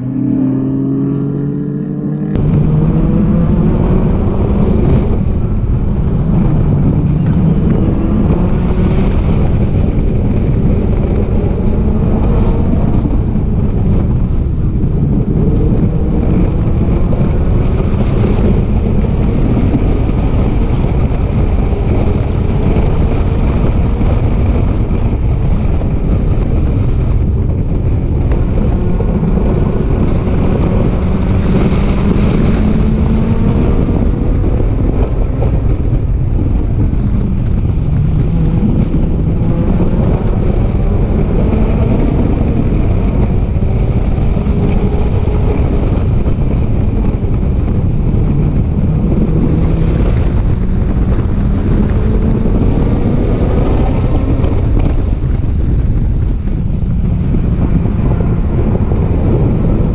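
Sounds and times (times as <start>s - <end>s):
race cars accelerating past: 0.0s - 13.2s
dense low rumble: 0.0s - 59.9s
onboard car engine revving: 0.0s - 59.9s.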